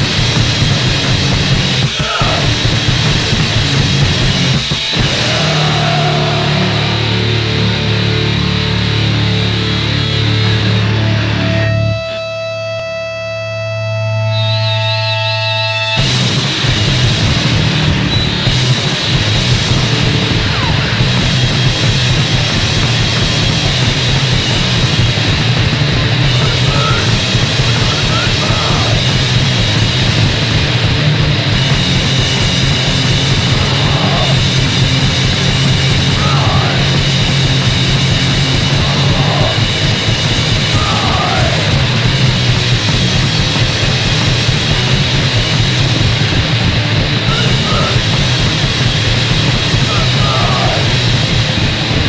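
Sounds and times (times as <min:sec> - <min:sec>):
punk band playing: 0:00.0 - 0:52.0
person shouting vocals: 0:01.9 - 0:02.6, 0:05.1 - 0:07.0, 0:26.4 - 0:27.2, 0:27.8 - 0:29.1, 0:33.5 - 0:34.5, 0:36.1 - 0:37.0, 0:38.7 - 0:39.7, 0:40.7 - 0:41.9, 0:47.3 - 0:48.0, 0:49.8 - 0:51.0.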